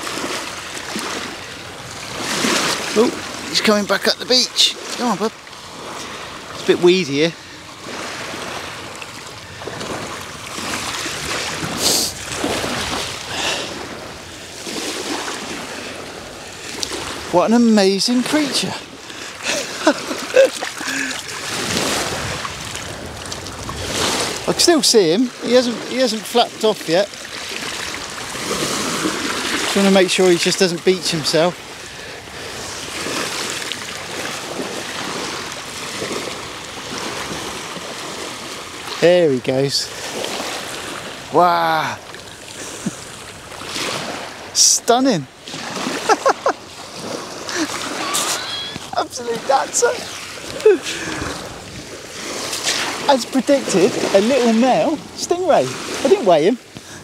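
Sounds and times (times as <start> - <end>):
water splash: 0.0 - 3.6, 7.9 - 15.9, 18.1 - 31.5, 42.0 - 56.4
waves lapping on shingle: 0.0 - 57.0.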